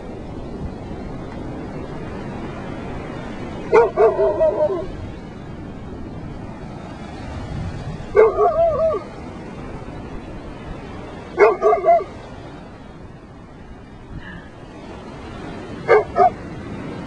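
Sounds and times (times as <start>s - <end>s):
surf and wind hiss: 0.0s - 17.0s
dog barking and yipping: 3.7s - 4.9s, 8.1s - 9.1s, 11.4s - 12.2s, 15.9s - 16.4s.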